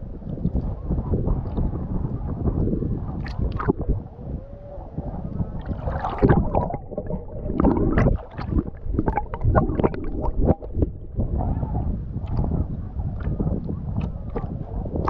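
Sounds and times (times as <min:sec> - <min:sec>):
wind on microphone: 0:00.0 - 0:15.0
sea water splashing: 0:03.1 - 0:15.0.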